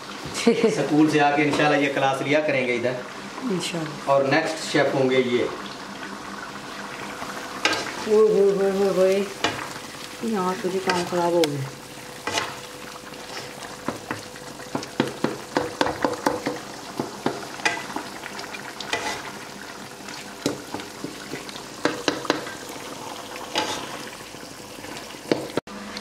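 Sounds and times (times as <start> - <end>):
meat sizzling in a wok: 0.0 - 26.0
spatula scraping a pan: 7.6 - 8.1, 10.7 - 11.3, 12.2 - 13.6, 18.8 - 19.4, 23.4 - 24.1.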